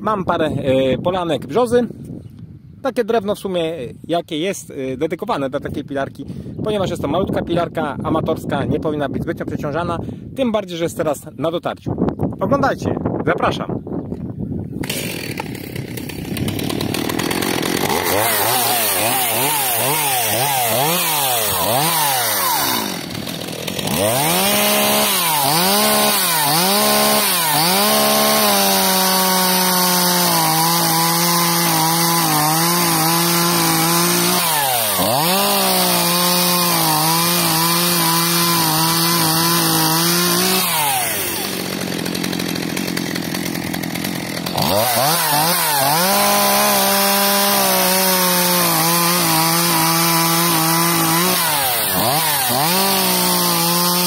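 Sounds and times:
chainsaw cutting logs: 14.8 - 54.0
chainsaw engine revving: 14.8 - 54.0.

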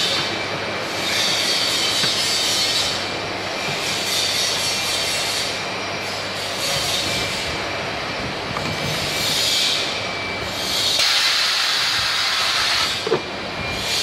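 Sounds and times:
blow moulding machine running: 0.0 - 14.0
compressed air hissing: 11.0 - 13.1.

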